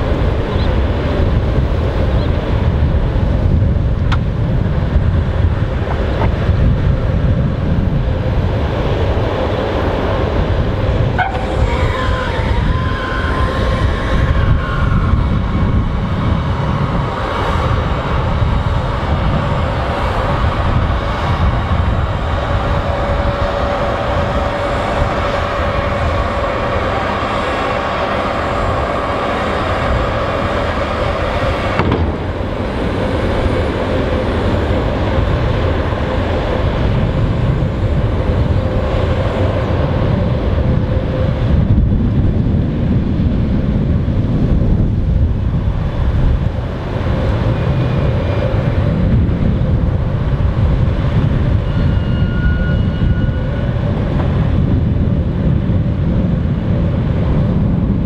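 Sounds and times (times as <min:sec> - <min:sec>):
steady higher tone: 0:10.9 - 0:41.9, 0:46.5 - 0:54.9.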